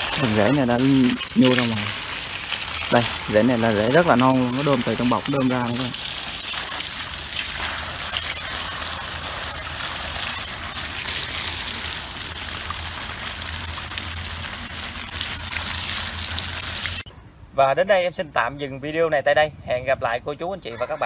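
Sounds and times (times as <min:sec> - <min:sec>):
water gushing from a hose: 0:00.0 - 0:17.1.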